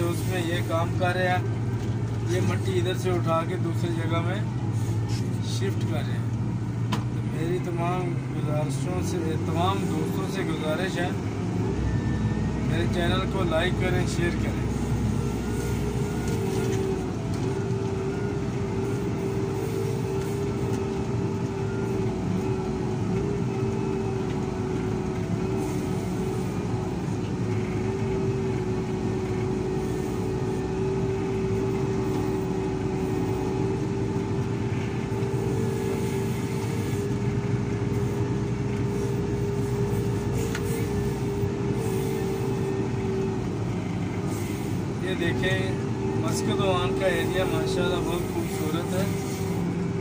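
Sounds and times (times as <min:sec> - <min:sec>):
diesel engine droning: 0:00.0 - 0:50.0
steady machine whine: 0:29.3 - 0:50.0.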